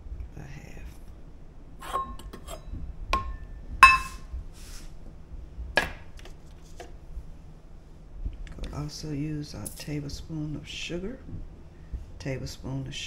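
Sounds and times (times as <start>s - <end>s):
metal cup knocking on plastic bowl: 3.2s - 4.2s.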